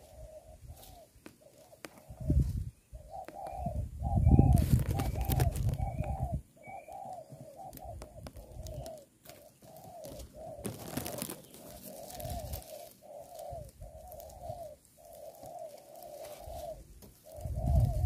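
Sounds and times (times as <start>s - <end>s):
doves cooing: 0.0s - 18.0s.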